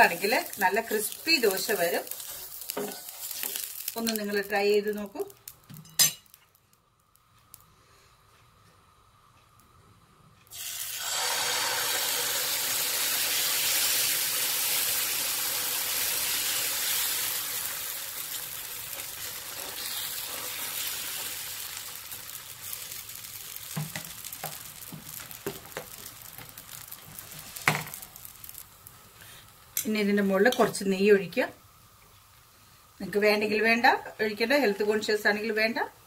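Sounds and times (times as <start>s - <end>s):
batter sizzling on hot pan: 0.0s - 7.6s, 10.5s - 31.4s.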